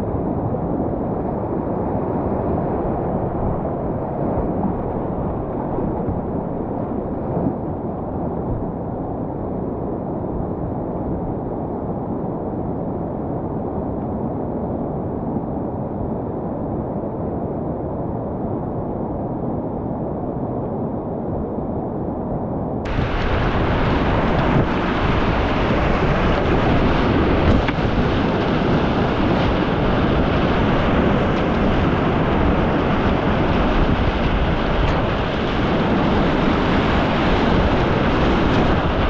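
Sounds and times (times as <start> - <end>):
muffled river rapid rushing: 0.0 - 12.7, 22.8 - 39.0.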